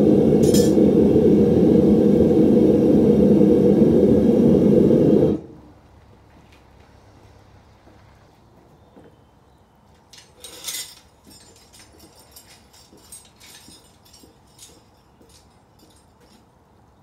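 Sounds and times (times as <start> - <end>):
metal tongs and chain clinking: 10.0 - 16.6.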